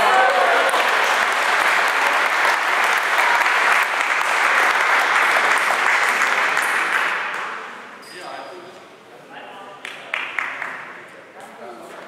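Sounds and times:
crowd applauding: 0.0s - 7.8s, 9.9s - 11.0s.

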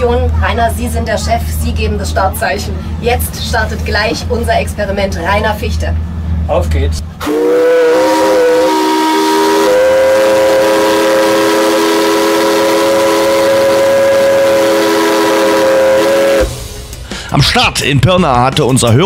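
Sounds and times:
steam whistle blast: 7.2s - 16.9s
hiss of steam: 7.2s - 17.4s.

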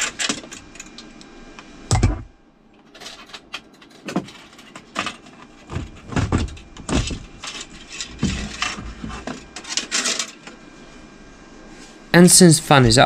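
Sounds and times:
dull thumps: 5.7s - 7.4s.

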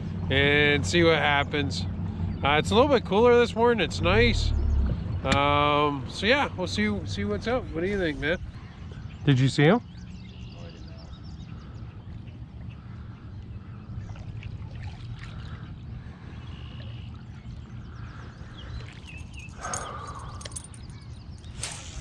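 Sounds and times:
steady low rumble: 0.0s - 22.0s
faint bird calls: 7.8s - 14.4s, 15.0s - 22.0s.

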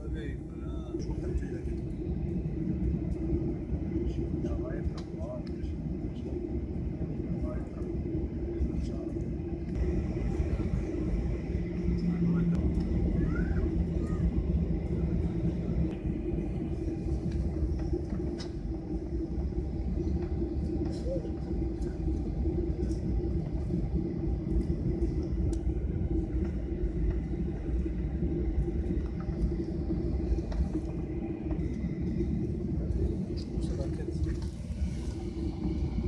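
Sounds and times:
jet engines rumbling in cabin: 0.0s - 36.0s.

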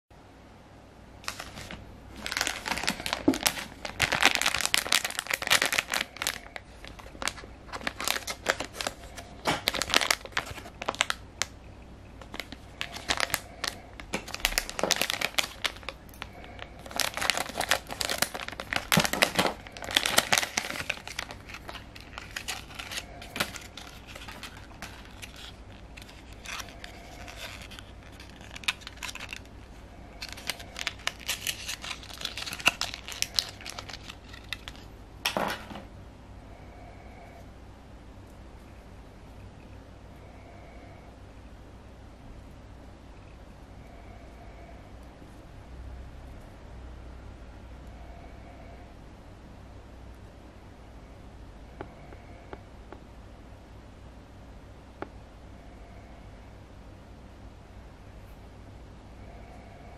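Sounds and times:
plastic wrapper crinkling and tearing: 1.2s - 11.6s, 12.2s - 35.7s.

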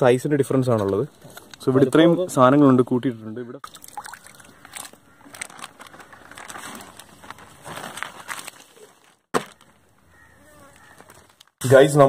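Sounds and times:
wet plastic bag crinkling: 3.6s - 11.6s.

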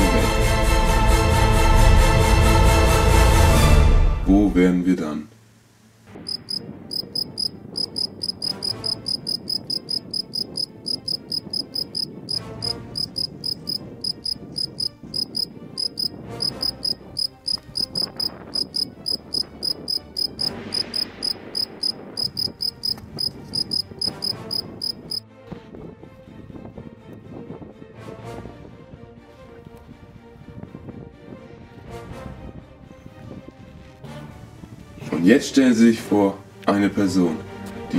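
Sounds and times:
cricket chirping: 6.2s - 25.2s.

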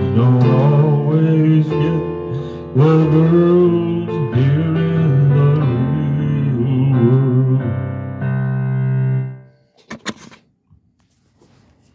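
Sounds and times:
country song on keyboard and band: 0.0s - 9.4s.

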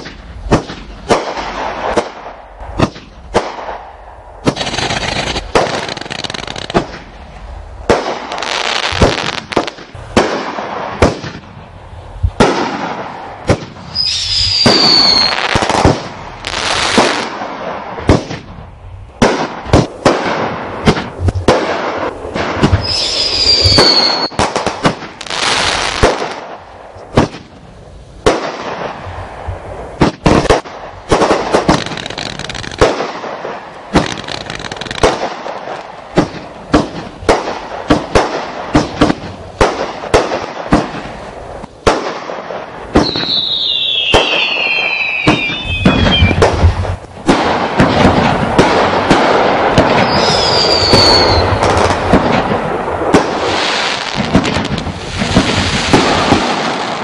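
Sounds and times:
fireworks bangs: 0.0s - 57.0s
fireworks crackling: 0.0s - 57.0s
firework whistles: 13.8s - 17.3s, 22.5s - 24.5s, 43.0s - 46.8s, 49.8s - 52.0s.

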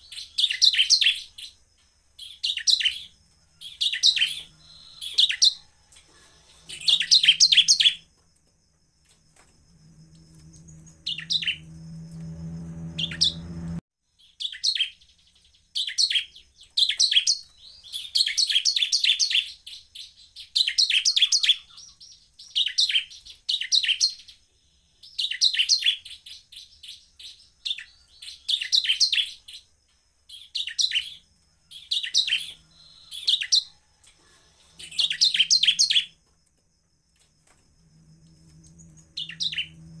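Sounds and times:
bird singing rapid trills: 0.0s - 5.7s, 6.4s - 8.1s, 10.1s - 33.8s, 34.8s - 36.2s, 38.3s - 40.0s
low hum: 9.4s - 13.8s, 37.8s - 40.0s.

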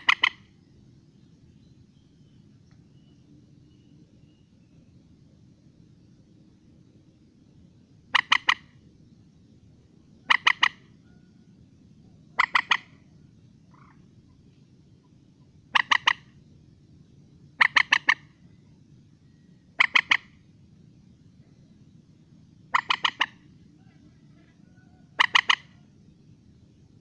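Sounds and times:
marsh bird calling: 0.0s - 0.6s, 8.1s - 8.8s, 10.2s - 11.3s, 12.3s - 16.4s, 17.5s - 18.6s, 19.3s - 20.5s, 22.7s - 26.0s.

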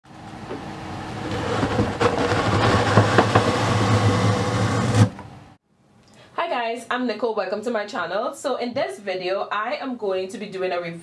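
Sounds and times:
paper cutter blade crunching: 1.2s - 5.2s.

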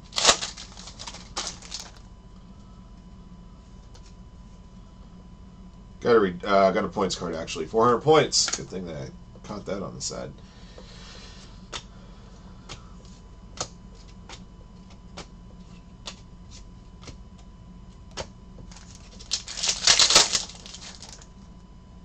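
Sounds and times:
foil wrapper tearing: 0.0s - 2.0s, 18.7s - 21.3s.

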